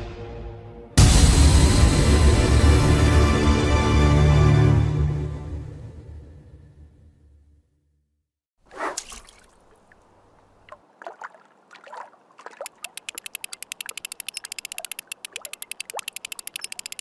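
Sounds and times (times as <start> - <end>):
fishing line cast whoosh: 8.7 - 9.6
watery plops and bubbles: 8.9 - 13.6, 14.8 - 16.1
fishing reel ratchet clicking: 12.7 - 17.0.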